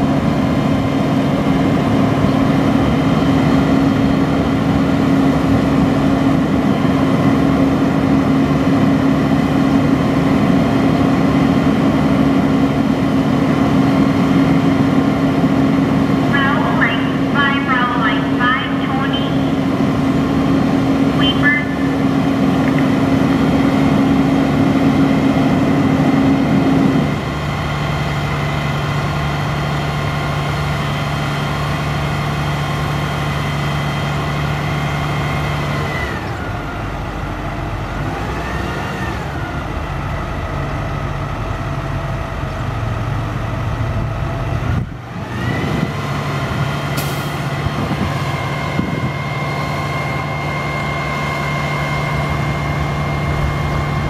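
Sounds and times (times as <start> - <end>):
diesel truck engine running: 0.0 - 54.0
steady high whine: 15.4 - 28.6.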